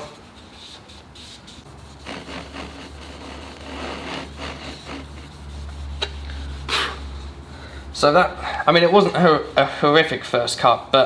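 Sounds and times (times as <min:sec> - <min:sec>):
hand saw rasping through wood: 0:02.0 - 0:07.0.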